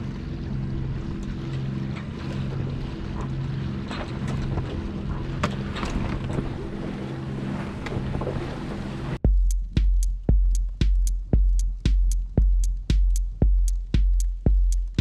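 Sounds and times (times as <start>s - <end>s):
low pulsing hum: 0.0s - 15.0s
water washing against hull: 0.0s - 15.0s.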